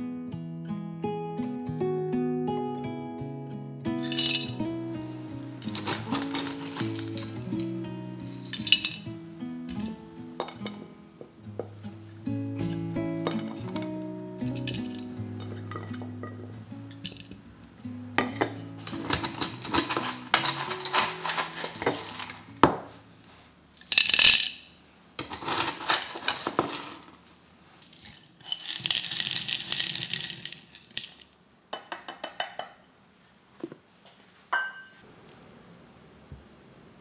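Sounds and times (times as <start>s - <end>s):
soft background music: 1.0s - 23.1s
sugar lumps clinking against glass: 4.0s - 4.6s, 5.6s - 9.1s, 14.4s - 16.4s.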